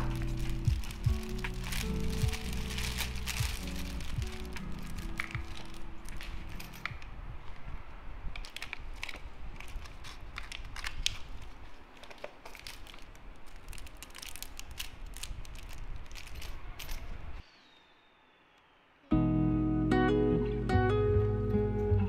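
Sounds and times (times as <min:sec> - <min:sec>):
plastic packaging crinkling: 0:00.0 - 0:07.6, 0:08.3 - 0:17.2.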